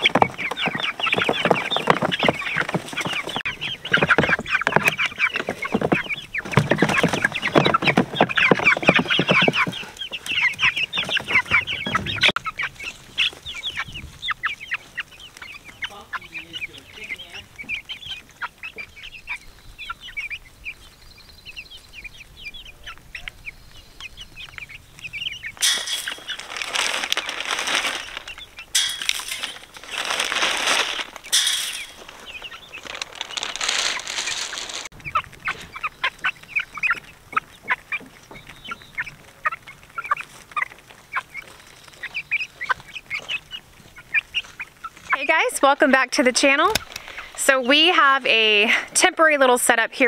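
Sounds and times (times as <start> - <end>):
chicks clucking and peeping: 0.0 - 50.0
loud rustling: 25.5 - 35.8.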